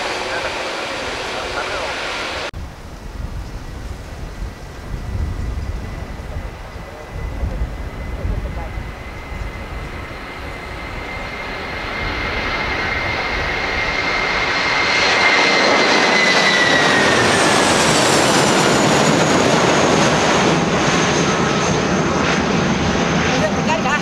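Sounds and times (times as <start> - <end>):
high jet whine dropping in pitch: 0.0 - 24.0
jet engines at takeoff thrust: 0.0 - 24.0.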